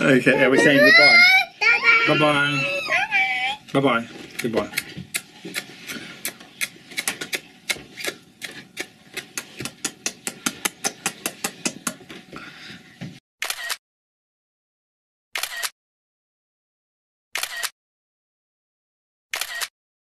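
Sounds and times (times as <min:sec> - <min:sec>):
lips kissing smacks: 0:04.4 - 0:11.9.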